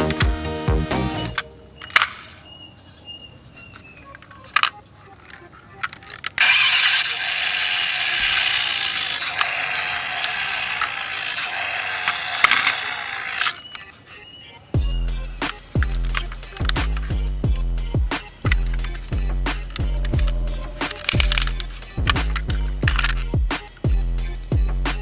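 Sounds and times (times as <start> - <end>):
sharp plastic clicks: 1.4 - 2.4, 3.7 - 13.9, 15.4 - 17.2, 18.2 - 23.8
toy mechanism rattling whir: 3.7 - 13.9, 15.1 - 24.4.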